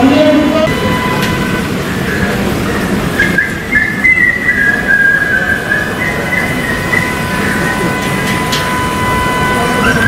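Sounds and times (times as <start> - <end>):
steady background noise: 0.0 - 10.0
high whistled tune: 3.1 - 10.0.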